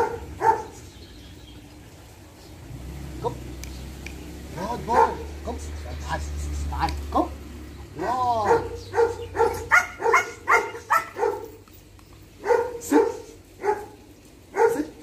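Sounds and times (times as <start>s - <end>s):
dog barking: 0.0s - 0.8s, 4.8s - 5.3s, 8.0s - 11.6s, 12.4s - 15.0s.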